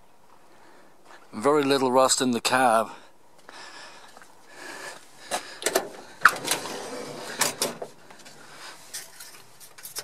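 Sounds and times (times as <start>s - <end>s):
truck door unlatching and opening: 5.6s - 8.0s.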